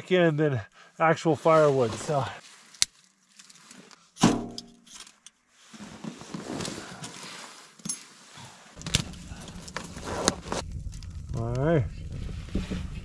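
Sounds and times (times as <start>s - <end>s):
fire crackling hiss: 8.8s - 13.0s.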